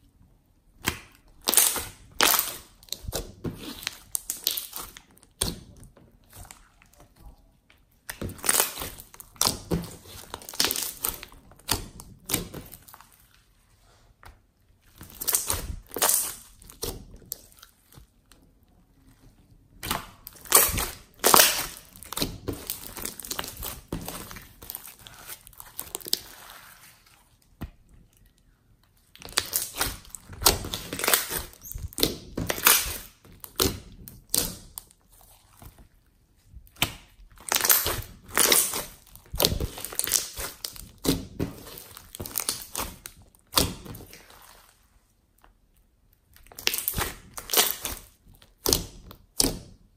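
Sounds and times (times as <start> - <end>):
slime squeezing: 19.8 - 27.5, 29.1 - 35.6, 36.6 - 44.9
air pops and crackles in slime: 29.2 - 34.9, 36.6 - 44.2.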